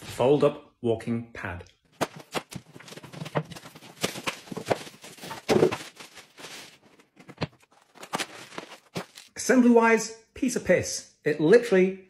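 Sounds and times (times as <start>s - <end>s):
cardboard scraping and rustling: 2.0s - 9.3s.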